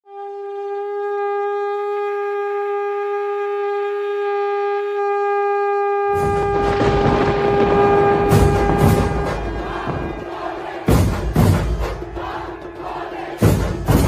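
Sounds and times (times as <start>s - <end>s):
conch shell blown long note: 0.0s - 12.6s
loud noisy din with low beats: 6.2s - 14.0s.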